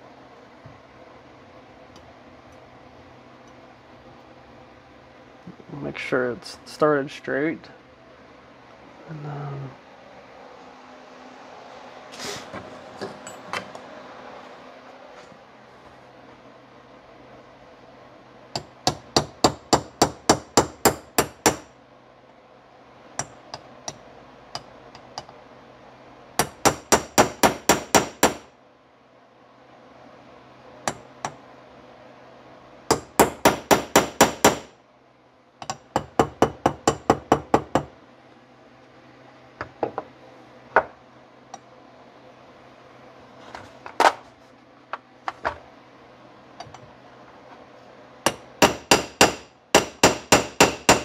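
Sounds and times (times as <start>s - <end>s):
hammer tapping on metal socket: 35.6s - 37.9s.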